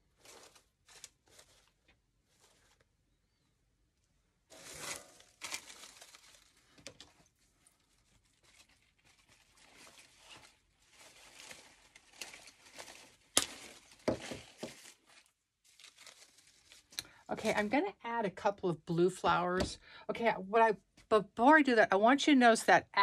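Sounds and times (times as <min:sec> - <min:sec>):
artificial flowers rustling: 0:00.0 - 0:03.4, 0:04.4 - 0:17.0.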